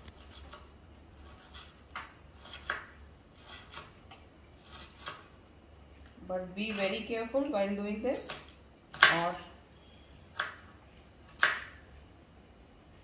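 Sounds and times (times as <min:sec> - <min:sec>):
knife chopping onion on plastic board: 0:00.0 - 0:04.0, 0:04.6 - 0:05.3, 0:08.1 - 0:09.4, 0:10.3 - 0:11.8.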